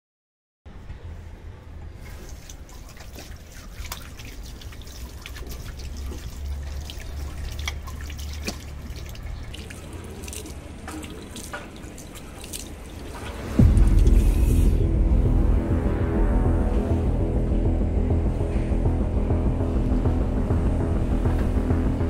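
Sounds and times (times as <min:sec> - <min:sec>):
tap water running and splashing: 0:02.0 - 0:13.6.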